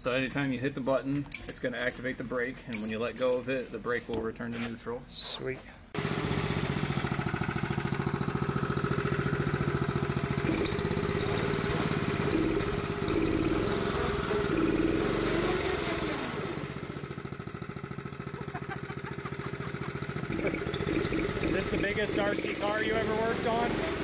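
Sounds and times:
go-kart engine running: 6.0s - 24.0s.

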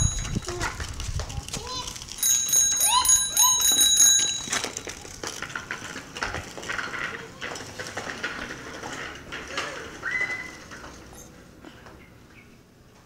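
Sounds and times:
bicycle bell ringing: 0.0s - 0.6s, 2.2s - 5.1s
bicycle clinking and rattling: 0.0s - 11.7s.

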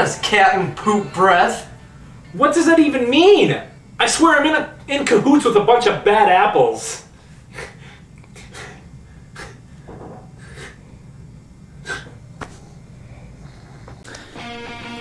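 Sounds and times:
low room hum: 0.0s - 15.0s
people breathing quietly: 7.1s - 14.8s.

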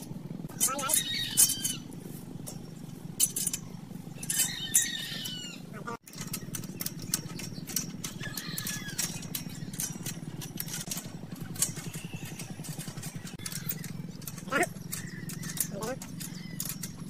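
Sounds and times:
motor pulsing hum: 0.0s - 17.0s
bird chirping: 3.6s - 17.0s
sharp irregular ticks and crackles: 6.0s - 17.0s.

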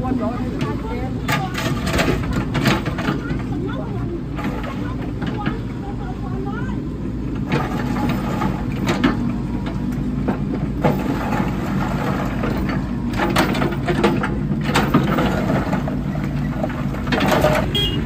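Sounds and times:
excavator engine running: 0.0s - 18.0s
bucket scraping concrete rubble: 4.3s - 5.3s, 7.4s - 9.3s, 10.7s - 18.0s.

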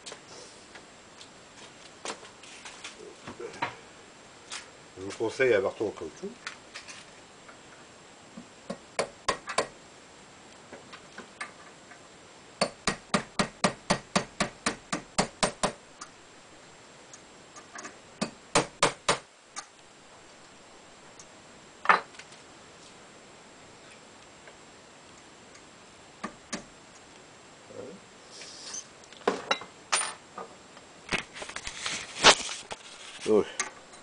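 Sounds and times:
hammer tapping a pin punch: 12.6s - 15.8s.

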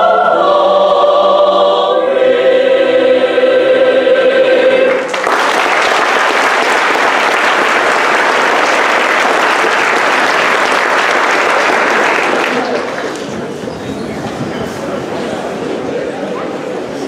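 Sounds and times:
choir singing chord: 0.0s - 5.1s
audience applause: 4.9s - 13.6s.

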